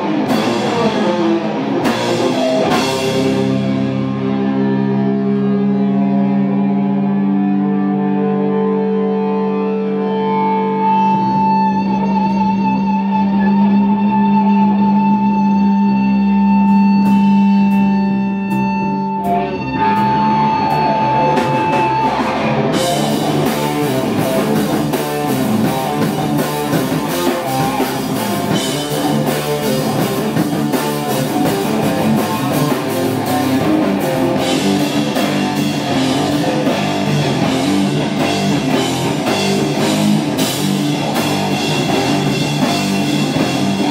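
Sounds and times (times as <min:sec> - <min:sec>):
droning guitar and bass chords: 0:00.0 - 0:43.9
heavy rock band riff: 0:00.0 - 0:43.9
high sustained guitar note: 0:02.6 - 0:24.2.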